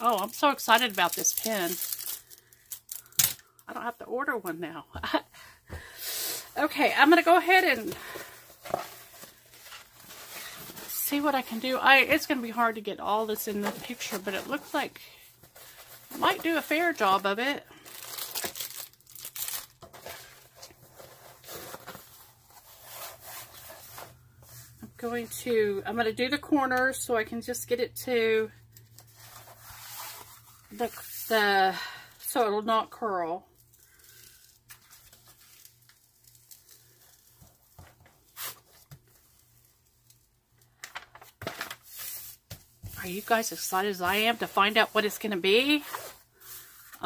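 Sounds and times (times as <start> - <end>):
plastic film rustling and crinkling: 0.0 - 3.6, 6.9 - 24.8, 33.5 - 47.0
paper rustling: 40.8 - 47.0.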